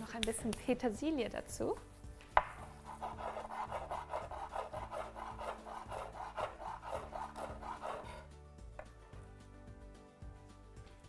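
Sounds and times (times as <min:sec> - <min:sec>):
knife chopping on wooden board: 0:02.3 - 0:08.2.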